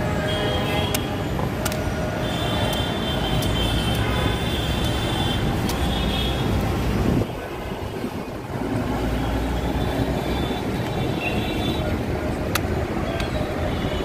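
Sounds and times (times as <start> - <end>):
road traffic: 0.0 - 14.0.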